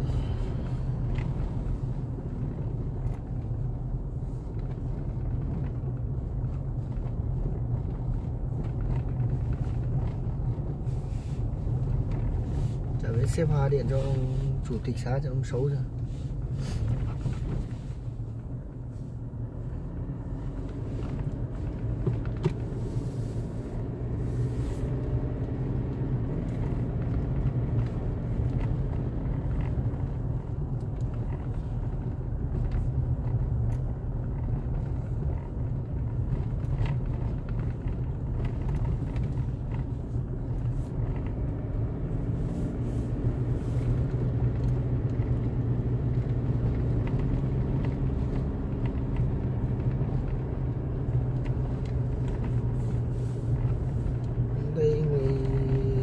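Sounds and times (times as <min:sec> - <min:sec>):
road rumble: 0:00.0 - 0:56.0
vehicle engine running: 0:00.0 - 0:56.0.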